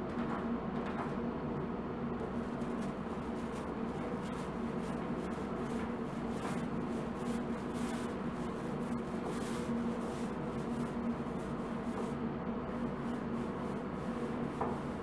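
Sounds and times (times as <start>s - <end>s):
paint roller swishing: 2.4s - 15.0s.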